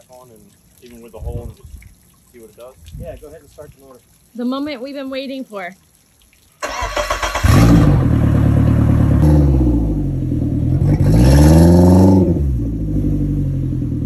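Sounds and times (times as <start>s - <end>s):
outboard motor revving: 6.6s - 14.0s.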